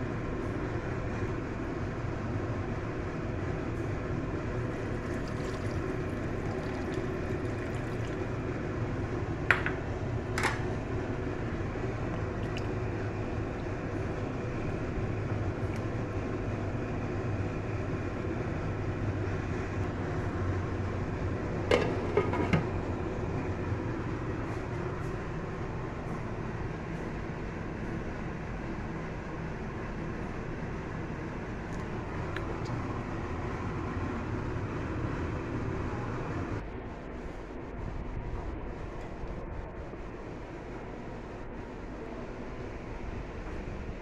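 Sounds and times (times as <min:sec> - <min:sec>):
steady low hum: 0:00.0 - 0:44.0
water pouring into a pan: 0:04.7 - 0:08.4.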